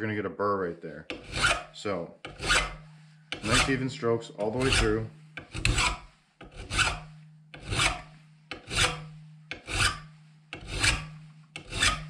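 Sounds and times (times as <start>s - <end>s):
hand file rasping on metal blade: 1.1s - 12.0s
low hum: 7.0s - 9.5s.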